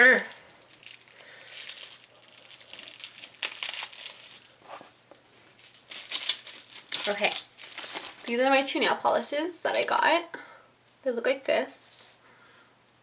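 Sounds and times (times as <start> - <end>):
bubble wrap crinkling: 0.0 - 8.6.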